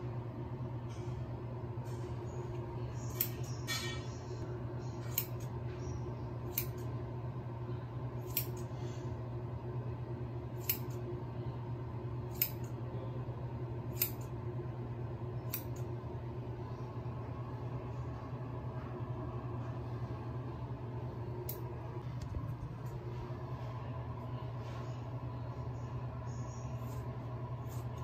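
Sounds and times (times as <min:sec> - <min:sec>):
steady low hum: 0:00.0 - 0:28.0
scissors snipping hair: 0:03.1 - 0:03.5, 0:05.0 - 0:05.5, 0:06.5 - 0:06.9, 0:08.2 - 0:08.7, 0:10.6 - 0:11.0, 0:12.3 - 0:12.8, 0:13.9 - 0:14.3, 0:15.5 - 0:15.9.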